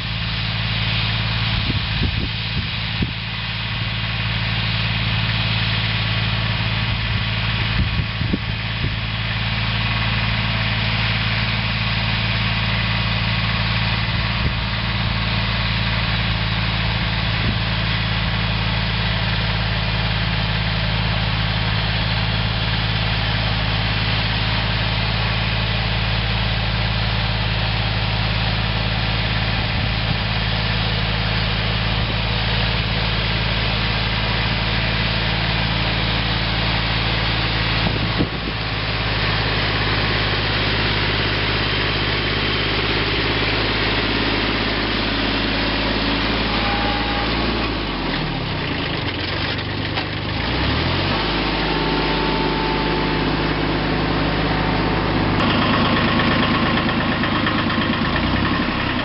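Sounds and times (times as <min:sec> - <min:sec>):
diesel tractor engine running: 0:00.0 - 0:59.0.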